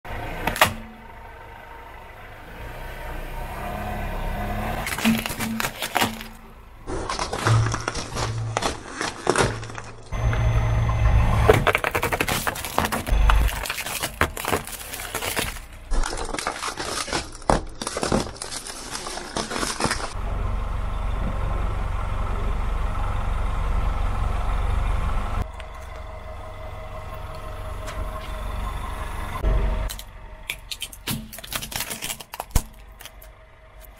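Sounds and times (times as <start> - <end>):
car low rumble: 0.1 - 33.9
plastic toys cracking under tyre: 4.8 - 10.2, 11.5 - 20.2, 29.9 - 33.9.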